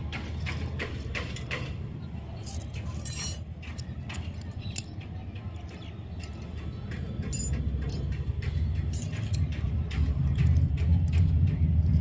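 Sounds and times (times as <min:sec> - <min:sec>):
small metal utensils clinking: 0:02.4 - 0:06.5.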